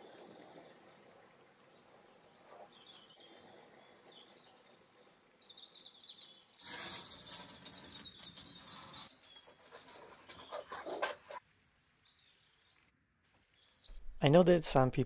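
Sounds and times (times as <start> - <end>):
masking tape pulled off roll: 6.6 - 7.7
faint squeaks and brushing: 6.6 - 11.4.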